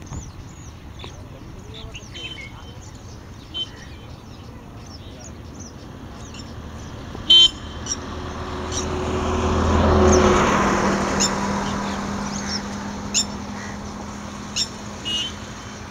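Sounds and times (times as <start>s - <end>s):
high bird chirps: 0.0s - 9.0s
vehicle passing on road: 0.0s - 15.9s.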